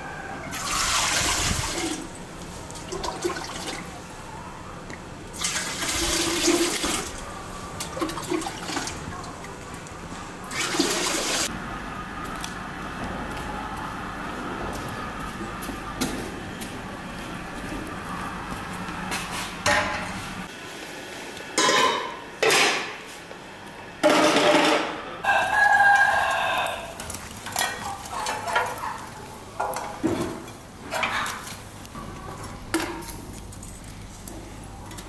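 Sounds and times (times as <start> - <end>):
rooster crowing: 0.0 - 1.1, 25.2 - 27.0
metal pots clattering: 21.6 - 23.0, 24.0 - 25.0, 27.0 - 31.6.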